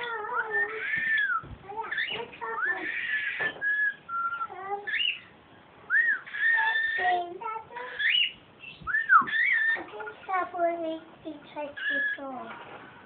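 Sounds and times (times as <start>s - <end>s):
cockatiels whistling: 0.2s - 5.3s, 5.9s - 7.2s, 7.9s - 9.8s
buzzy bird chirps: 0.4s - 5.3s, 7.8s - 9.8s.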